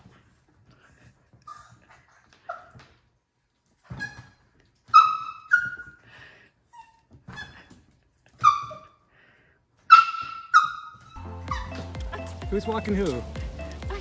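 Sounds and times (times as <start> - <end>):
puppy squeaking: 1.4 - 1.8, 3.9 - 6.0, 6.7 - 9.0, 9.9 - 12.5.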